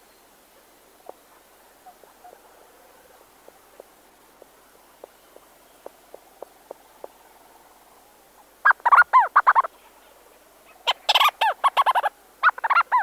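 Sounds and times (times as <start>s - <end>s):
seabird soft ticks: 3.5s - 7.2s
seabird chattering calls: 8.6s - 9.7s, 10.8s - 13.0s.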